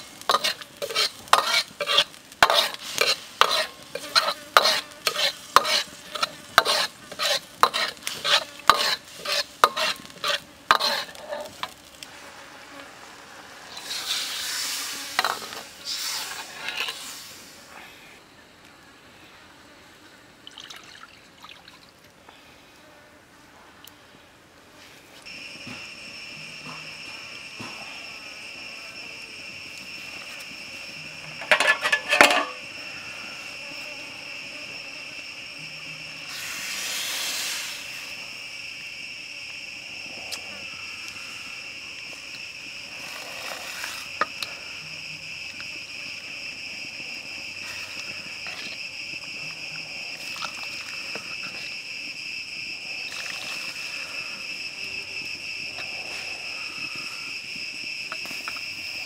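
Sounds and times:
high-pitched insect drone: 25.2 - 59.0.

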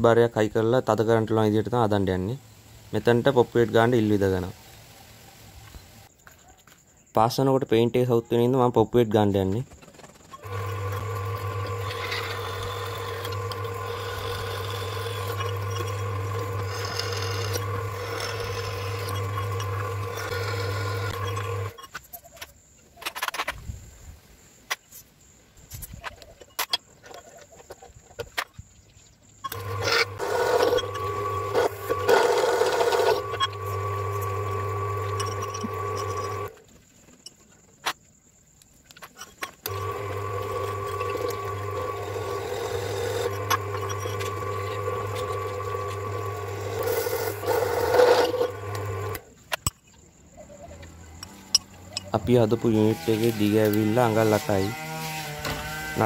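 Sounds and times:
drill press motor humming: 10.4 - 21.8, 29.5 - 36.6, 39.6 - 49.3.

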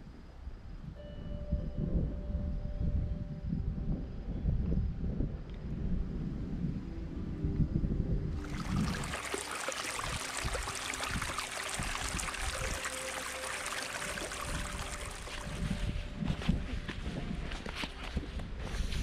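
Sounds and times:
stream water rushing: 8.4 - 15.8.

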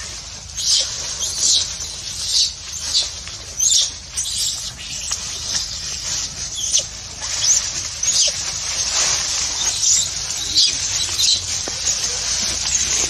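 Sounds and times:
dry leaves rustling: 0.0 - 13.0
baby monkey squeaking: 0.6 - 8.5, 9.4 - 13.0.

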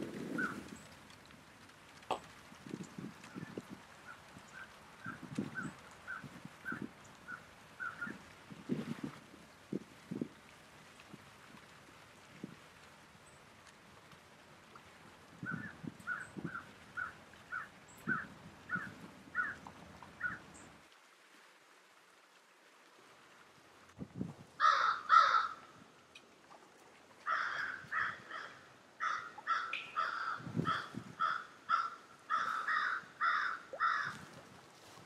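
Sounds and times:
crows cawing: 16.1 - 19.6, 20.2 - 20.4, 24.6 - 25.8, 27.2 - 34.4.

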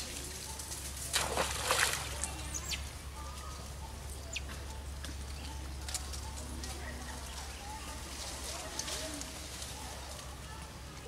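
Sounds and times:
water splashing: 1.0 - 2.8.

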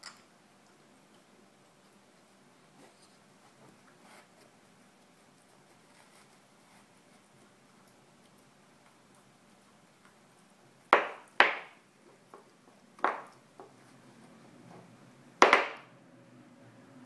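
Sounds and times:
chew knocking on wooden floor: 11.0 - 11.7.

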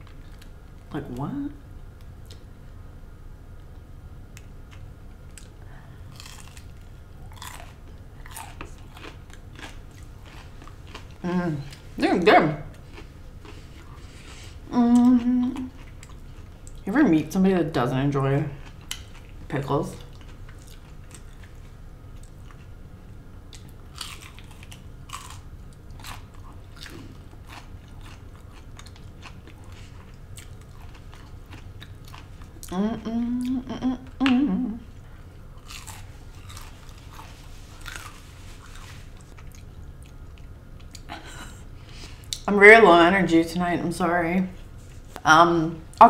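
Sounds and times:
chewing crunchy food: 0.0 - 0.8, 3.7 - 12.0, 12.6 - 16.9, 18.3 - 22.8, 23.4 - 32.8, 34.9 - 41.2
person speaking: 11.2 - 12.8.

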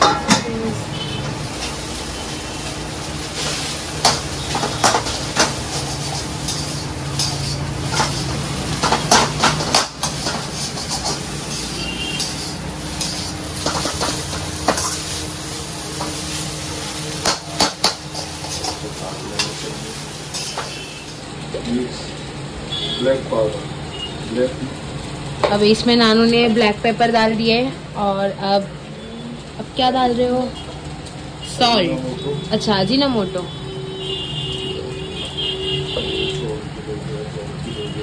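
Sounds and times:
pan sizzling: 0.0 - 38.0
metal spatula scraping a wok: 2.6 - 21.1.

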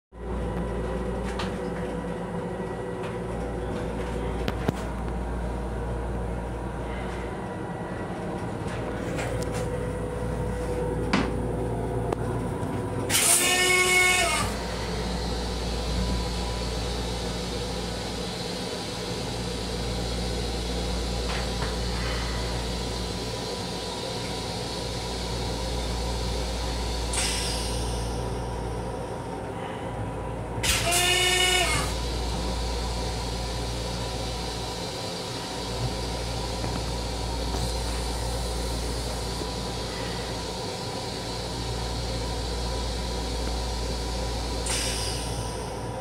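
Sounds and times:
electric train rumble and hum: 0.1 - 46.0
pitched whine with hiss: 13.1 - 29.7, 30.6 - 46.0.

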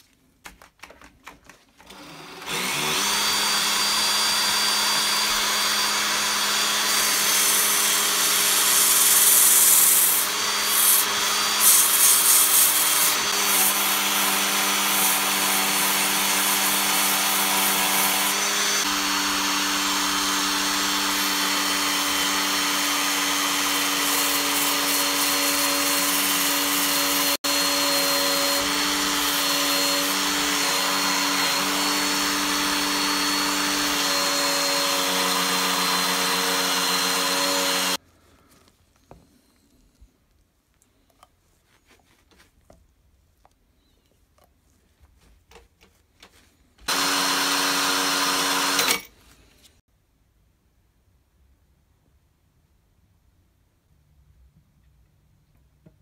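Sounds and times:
cordless drill running: 1.8 - 38.0, 46.8 - 49.1
sandpaper hissing on wood: 8.5 - 18.4, 23.8 - 27.4.

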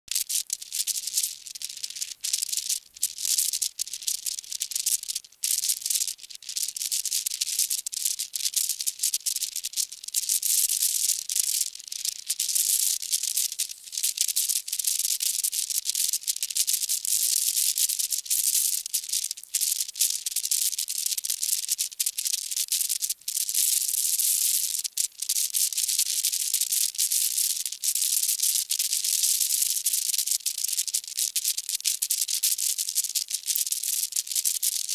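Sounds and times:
high-pitched hiss: 12.5 - 15.2.

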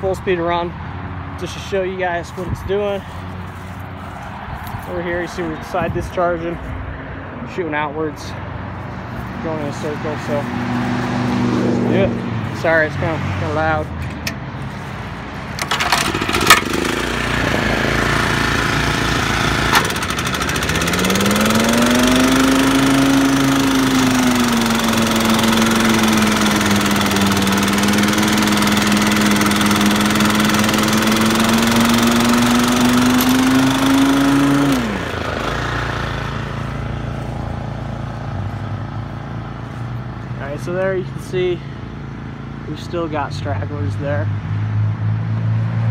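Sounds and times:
lawn mower engine running: 0.0 - 6.8, 8.1 - 44.0.

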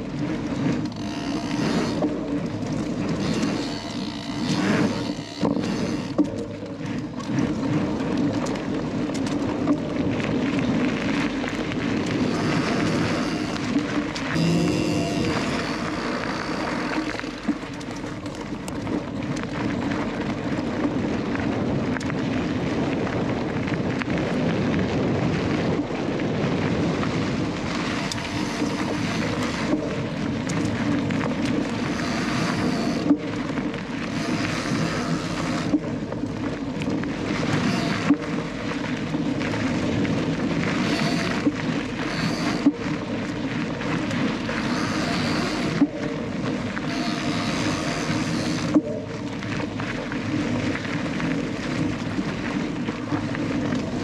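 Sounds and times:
bicycle freewheel buzzing: 0.0 - 7.7, 10.6 - 18.9, 27.4 - 54.0
bike tyres rumbling: 0.0 - 54.0
wind on microphone: 0.0 - 54.0.

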